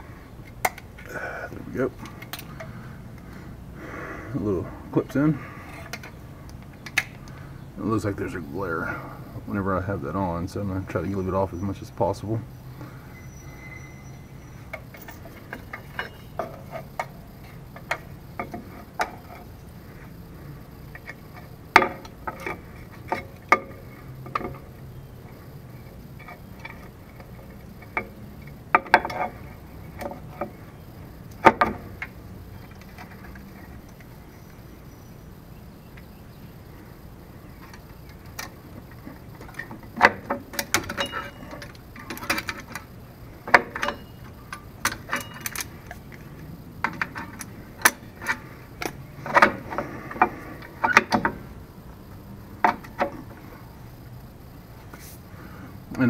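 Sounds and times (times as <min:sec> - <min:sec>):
metal parts clinking and clanking: 0:13.1 - 0:20.1, 0:26.0 - 0:30.6, 0:37.5 - 0:51.5.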